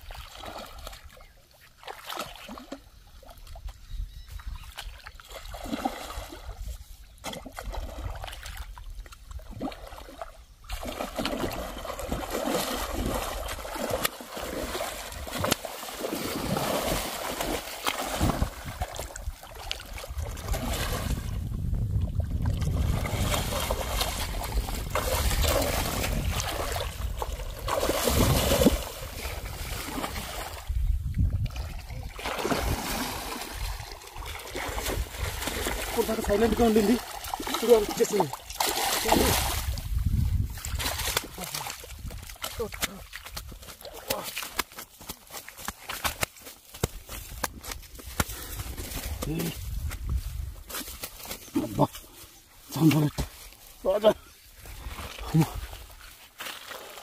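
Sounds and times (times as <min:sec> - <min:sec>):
water sloshing: 0:04.7 - 0:49.6
fish thrashing and splashing: 0:04.8 - 0:06.6, 0:09.4 - 0:21.4, 0:22.3 - 0:30.7, 0:31.5 - 0:49.8.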